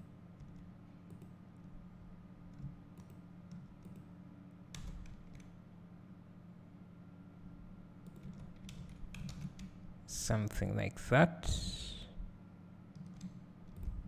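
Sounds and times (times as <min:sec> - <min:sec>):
low steady hum: 0:00.0 - 0:14.0
computer mouse and keyboard clicks: 0:02.5 - 0:04.1, 0:08.0 - 0:09.8, 0:12.9 - 0:14.0.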